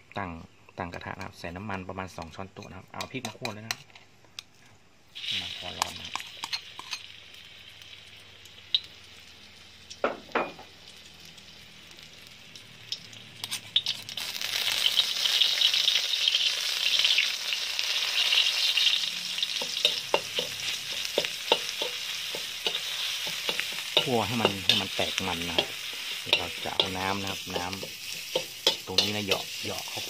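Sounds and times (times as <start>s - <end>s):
paste sizzling in hot oil: 5.1s - 30.0s
metal spatula scraping wok: 5.2s - 7.1s, 13.4s - 15.1s, 18.0s - 30.0s.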